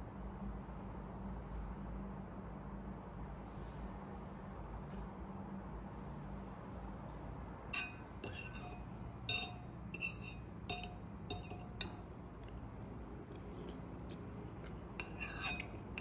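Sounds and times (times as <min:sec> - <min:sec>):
fork and spoon clinking on bowl: 0:07.8 - 0:12.0, 0:15.0 - 0:16.0.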